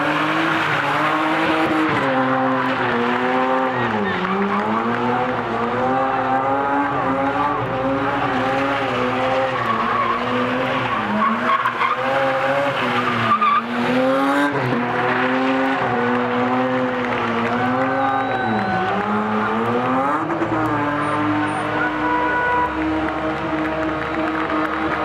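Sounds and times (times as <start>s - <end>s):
car engine revving: 0.0s - 25.0s.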